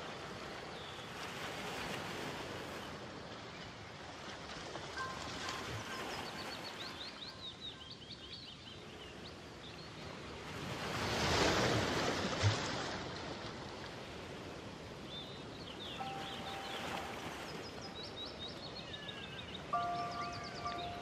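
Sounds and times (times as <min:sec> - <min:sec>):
relaxing background music: 0:04.9 - 0:07.5, 0:15.9 - 0:18.5, 0:19.6 - 0:21.0
bird chirps: 0:05.0 - 0:08.7, 0:15.7 - 0:21.0.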